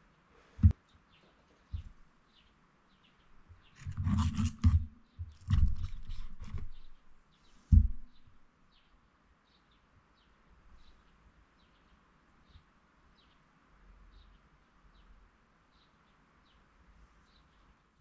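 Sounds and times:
faint bird chirps: 5.0s - 18.0s.

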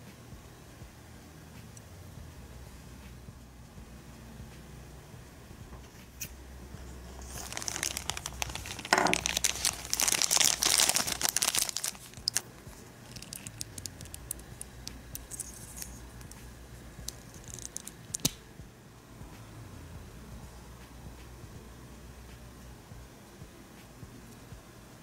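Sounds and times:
plastic bag crinkling and tearing: 7.1s - 14.4s, 17.1s - 18.3s.

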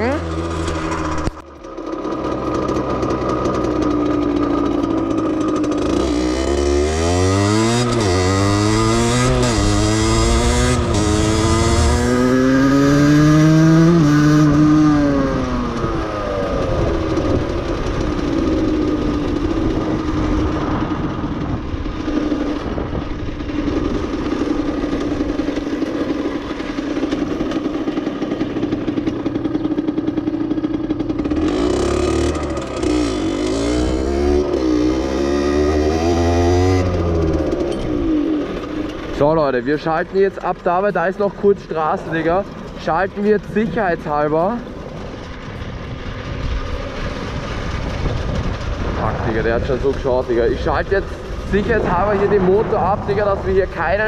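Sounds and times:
moped engine revving: 0.0s - 54.0s.

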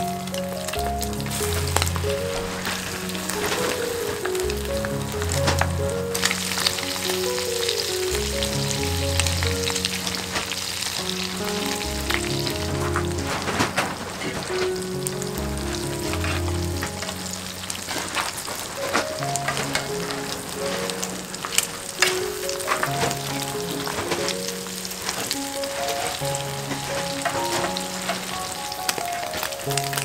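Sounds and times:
patties sizzling in hot oil: 0.0s - 30.0s
soft background music: 0.0s - 30.0s.

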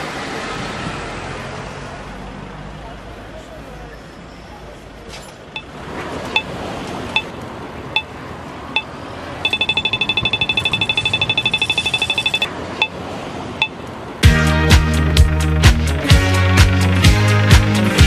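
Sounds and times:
street traffic: 0.0s - 18.0s
crossing signal beeping and ticking: 6.3s - 6.5s, 7.1s - 13.0s, 13.6s - 13.9s.

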